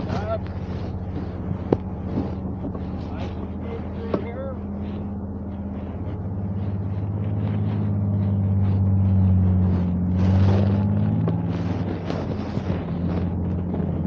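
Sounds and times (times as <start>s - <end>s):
engine drone: 0.0s - 14.0s
rush of rough noise: 0.0s - 14.0s.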